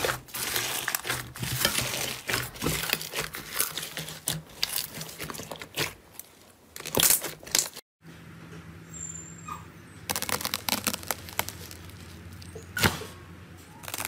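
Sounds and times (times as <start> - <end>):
slime crackling and popping: 0.0 - 6.0, 10.1 - 12.1.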